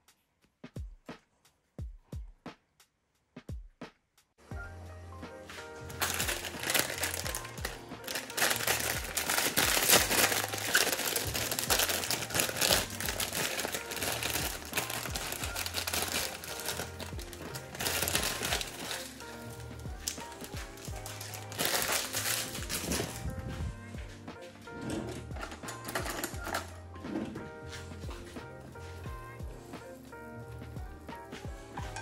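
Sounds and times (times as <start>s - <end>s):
background music with bass line: 4.5s - 32.0s
loud crinkling and crackling: 5.5s - 23.8s, 24.7s - 27.4s.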